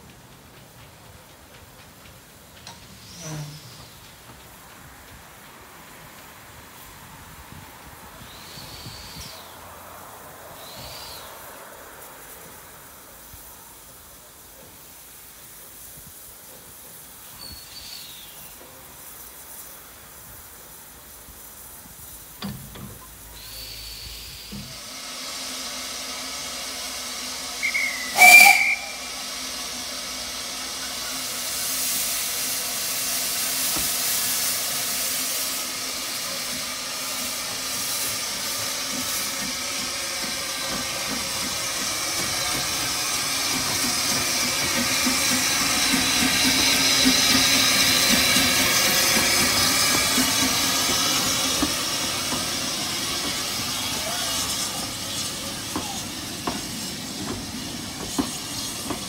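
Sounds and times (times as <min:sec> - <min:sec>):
steam hissing: 0:00.0 - 0:59.0
steam whistle blast: 0:27.4 - 0:29.8.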